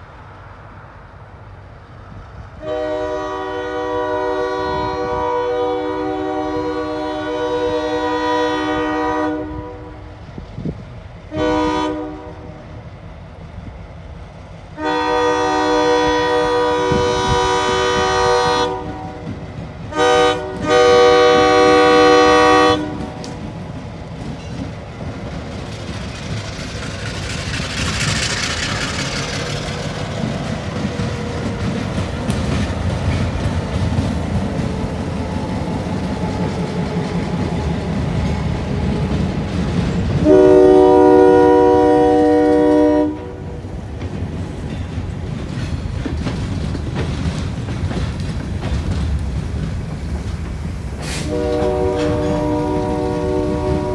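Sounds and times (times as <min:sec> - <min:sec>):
locomotive air horn: 0:02.6 - 0:10.1, 0:11.3 - 0:12.6, 0:14.8 - 0:23.4, 0:40.2 - 0:43.6, 0:51.0 - 0:53.9
train wheels clacking: 0:14.4 - 0:53.9.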